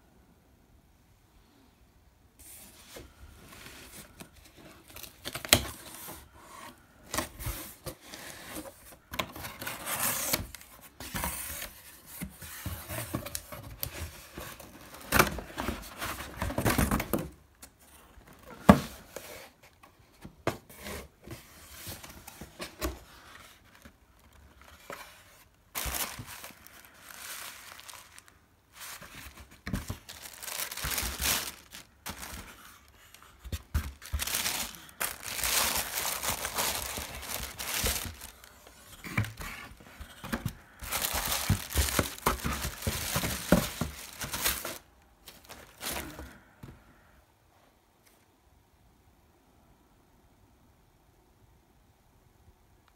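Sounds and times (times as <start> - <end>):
cardboard and paper tearing: 33.7 - 38.5.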